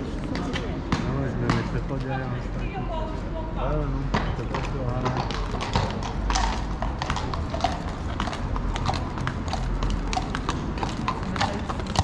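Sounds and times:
hooves clip-clopping on stone: 3.9s - 12.0s.

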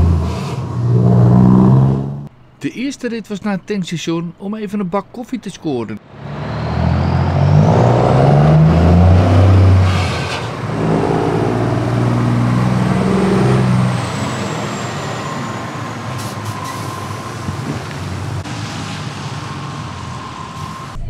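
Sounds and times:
truck diesel engine revving: 0.0s - 2.3s, 6.0s - 21.0s.

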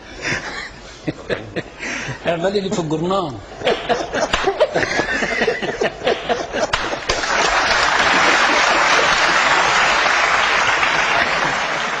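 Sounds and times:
laughter: 0.2s - 1.8s, 3.6s - 10.0s, 10.9s - 12.0s
people talking: 2.3s - 3.4s
audience applauding: 6.7s - 12.0s.

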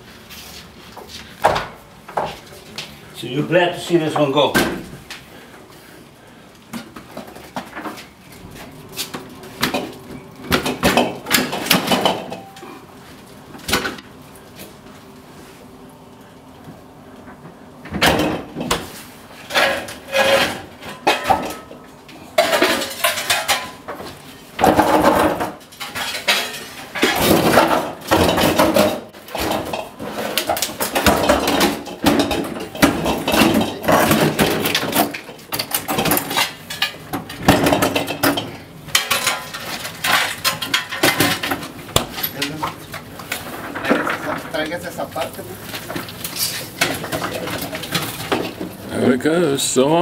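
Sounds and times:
fridge on hand truck clattering: 24.6s - 42.6s.

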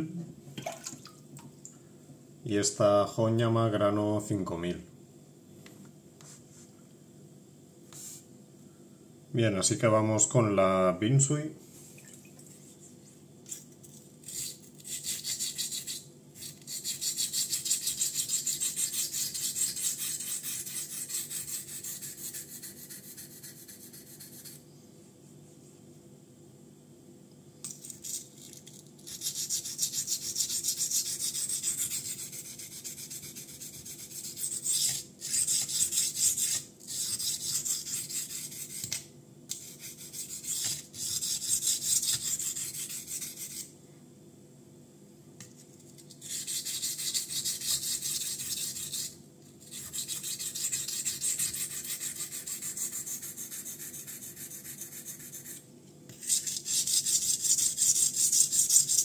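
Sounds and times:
knife scraping on whetstone: 14.2s - 24.6s, 28.0s - 43.7s, 46.2s - 59.0s.

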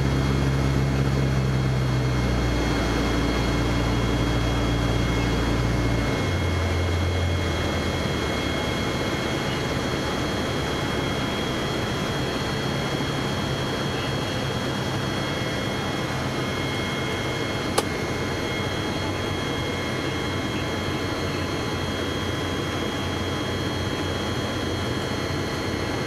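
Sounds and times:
aircraft engine and propeller: 0.0s - 26.0s.

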